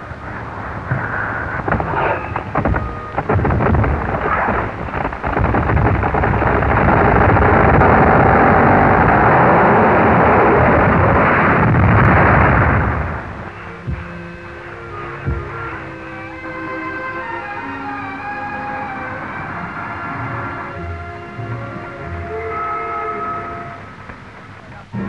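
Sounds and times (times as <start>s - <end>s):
tree crashing down: 1.0s - 17.4s.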